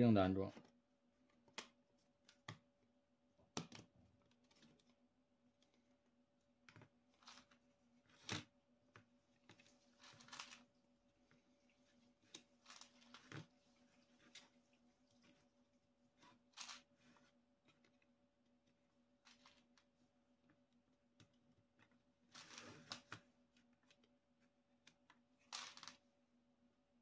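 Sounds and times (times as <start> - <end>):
plastic parts clicking and tapping: 3.5 - 4.9.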